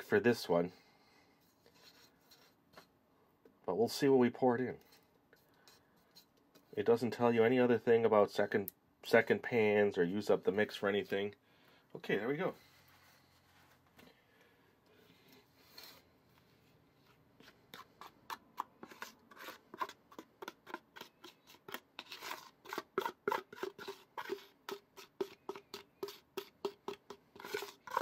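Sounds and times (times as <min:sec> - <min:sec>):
wooden spoon scraping plastic bowl: 0:17.0 - 0:28.0.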